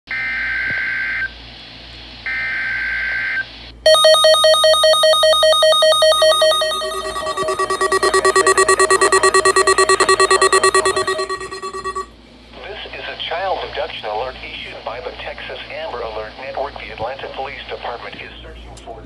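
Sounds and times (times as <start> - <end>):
lower-pitched pulsing alarm: 3.9 - 12.1
weather radio alarm beeping rapidly: 3.9 - 12.1.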